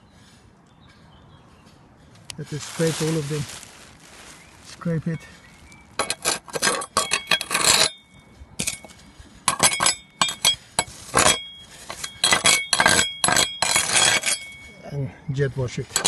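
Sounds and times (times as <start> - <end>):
trowel scraping roof tiles: 6.0 - 8.0, 8.6 - 14.6
blade clinking on tile edges: 11.2 - 14.6.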